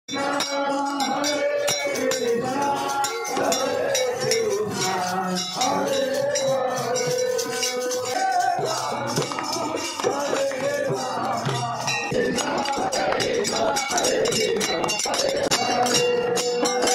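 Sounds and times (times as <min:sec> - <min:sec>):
jingling hand cymbals: 0:00.1 - 0:16.9
voices singing a chant: 0:00.1 - 0:16.9
hand drum: 0:01.8 - 0:16.9.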